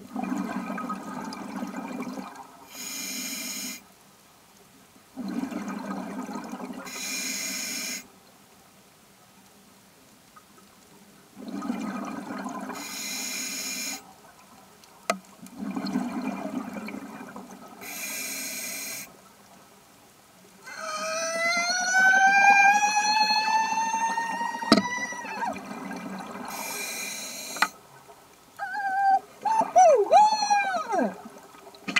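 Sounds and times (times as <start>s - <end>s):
exhaled bubbles rumbling: 0.0s - 2.6s, 5.2s - 6.9s, 11.4s - 12.8s, 15.4s - 17.8s, 23.6s - 26.7s
regulator inhale hiss: 2.7s - 3.8s, 6.9s - 8.1s, 12.8s - 14.0s, 17.8s - 19.2s, 26.5s - 27.8s.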